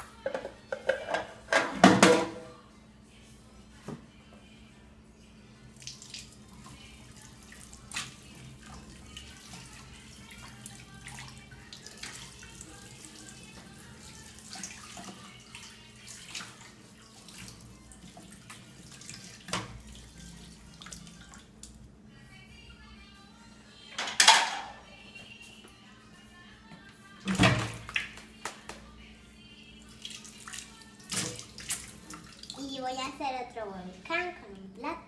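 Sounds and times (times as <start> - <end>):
dishes clinking: 24.0 - 24.8.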